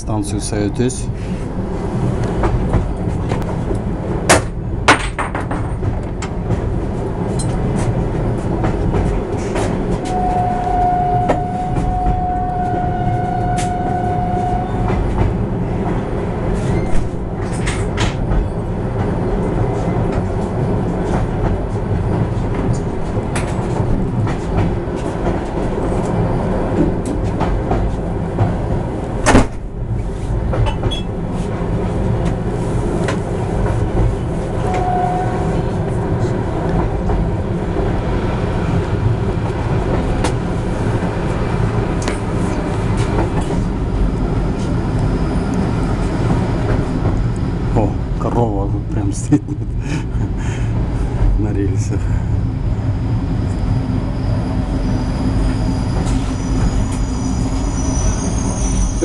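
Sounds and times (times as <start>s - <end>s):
train wheels rumbling on rail: 0.0s - 59.0s
clacks over rail joints: 2.2s - 10.2s, 14.8s - 31.1s
steady high tone: 10.0s - 14.9s.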